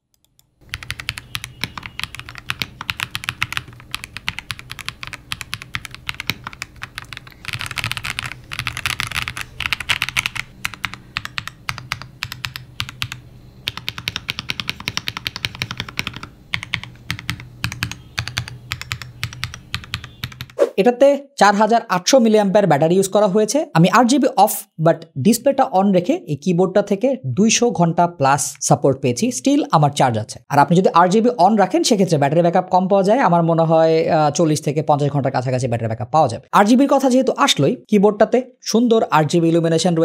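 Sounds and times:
typing on mechanical keyboard: 0:00.2 - 0:20.6.

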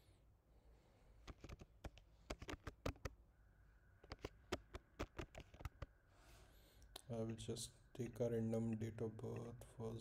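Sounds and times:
typing on computer keyboard: 0:01.3 - 0:03.1.

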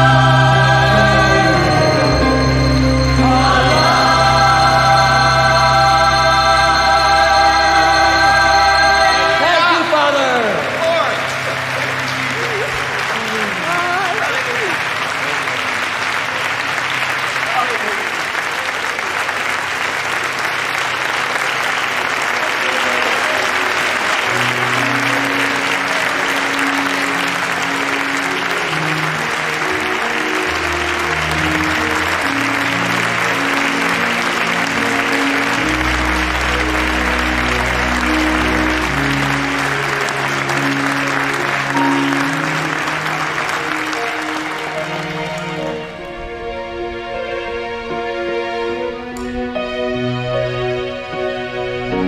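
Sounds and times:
slow music of low notes: 0:00.0 - 0:17.5, 0:19.5 - 0:52.0
audience applause: 0:00.0 - 0:46.5.

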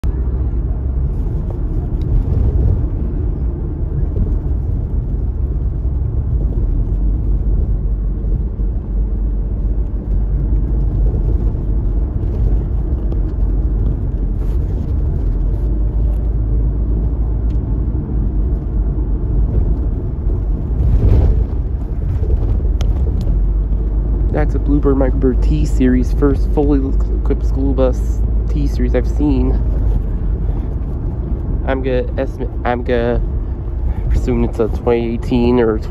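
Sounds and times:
vehicle cabin road rumble: 0:00.0 - 0:35.9
rush of noise: 0:00.1 - 0:27.2.

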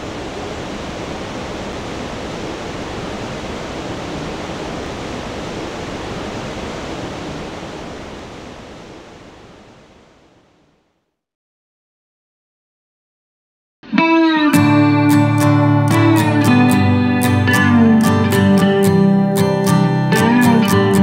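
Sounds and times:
river water rushing: 0:00.0 - 0:10.3.

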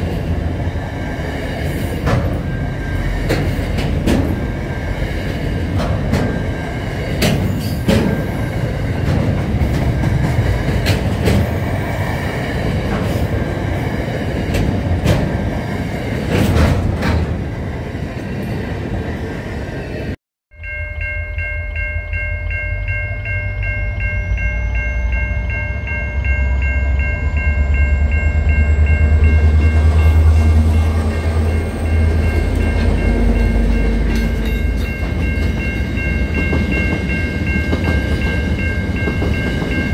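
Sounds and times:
diesel locomotive rumble: 0:00.0 - 0:17.8, 0:22.8 - 0:39.9
train wheels clattering over rail joints: 0:01.7 - 0:02.5, 0:03.1 - 0:04.5, 0:05.2 - 0:11.6, 0:16.2 - 0:17.4
level crossing bells ringing: 0:20.5 - 0:39.9.

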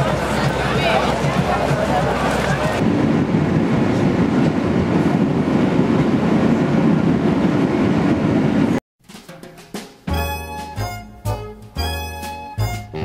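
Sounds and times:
train wheels rumbling on rail: 0:00.0 - 0:08.8.

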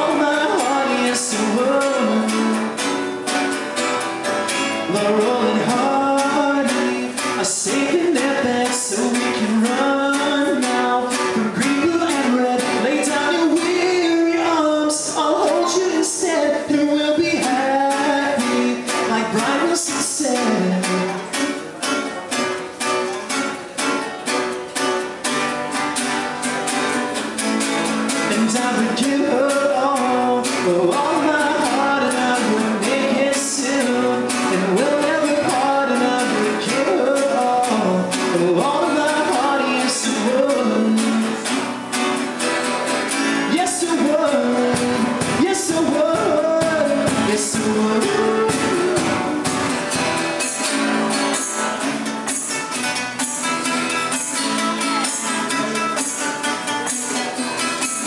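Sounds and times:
person singing: 0:00.0 - 0:22.0, 0:27.8 - 0:42.2, 0:43.1 - 0:58.0
acoustic guitars strummed: 0:00.0 - 0:58.0.

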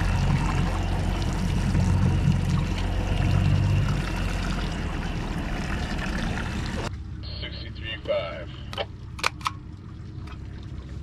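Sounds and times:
outboard engine idling: 0:00.0 - 0:07.2
water sloshing and trickling: 0:00.0 - 0:07.2, 0:08.8 - 0:11.0.

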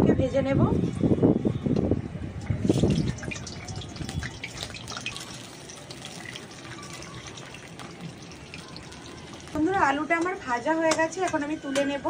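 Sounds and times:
potatoes sizzling in hot oil: 0:02.7 - 0:10.1.

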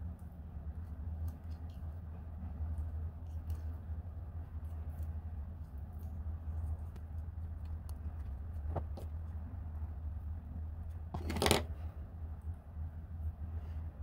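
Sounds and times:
steady low hum: 0:00.0 - 0:14.0
pliers clattering on table: 0:11.2 - 0:11.7.

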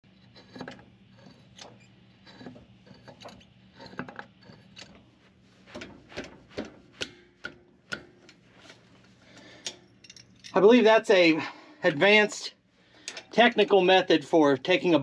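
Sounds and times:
metal clicks and clunks: 0:00.4 - 0:05.1, 0:05.7 - 0:08.4.

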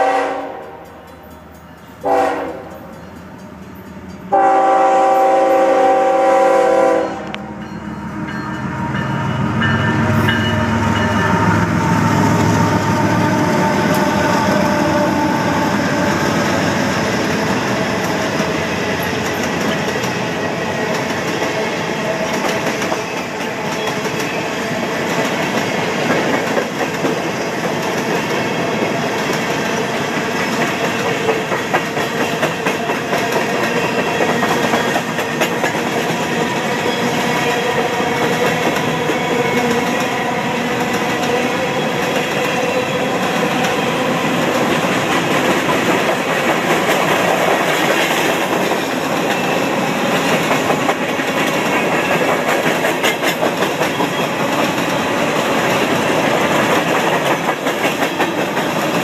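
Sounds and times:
freight train wheels rumbling: 0:00.0 - 0:59.0
wheels clacking over rail joints: 0:43.3 - 0:59.0.

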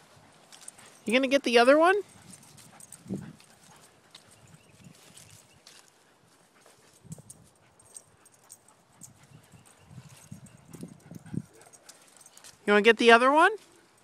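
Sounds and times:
footsteps on grass: 0:02.1 - 0:07.1.

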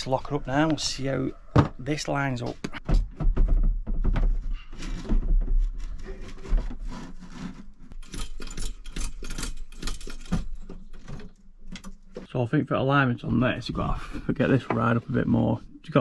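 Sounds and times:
cabinet panels rubbing and scraping: 0:01.4 - 0:12.2.

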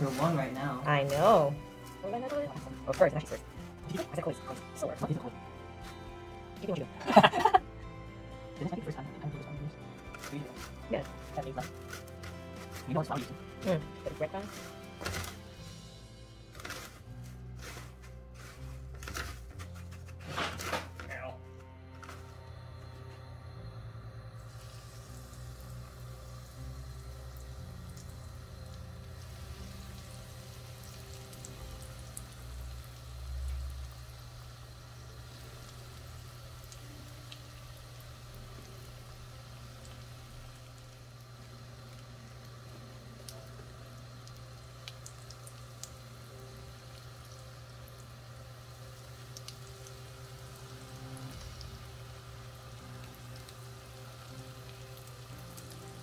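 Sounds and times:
oil sizzling with pops: 0:00.0 - 0:07.6, 0:08.6 - 0:21.2, 0:24.4 - 0:56.0
low steady hum: 0:17.4 - 0:56.0.

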